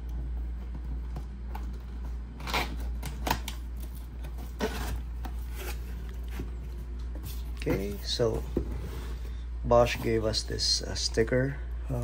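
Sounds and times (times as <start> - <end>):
cardboard flaps scraping and rustling: 3.8 - 9.2.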